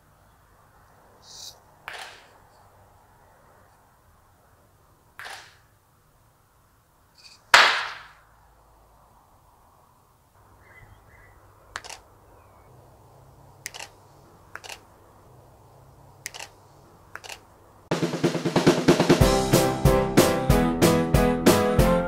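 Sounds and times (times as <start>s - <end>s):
camera shutter clicks: 11.7s - 12.1s, 13.6s - 14.9s, 16.2s - 17.5s.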